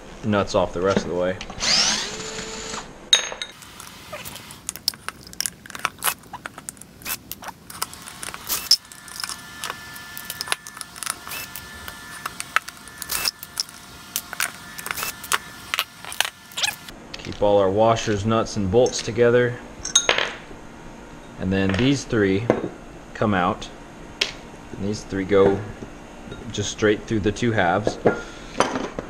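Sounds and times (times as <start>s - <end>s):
cordless screwdriver whirring: 1.6s - 2.9s, 7.7s - 16.9s.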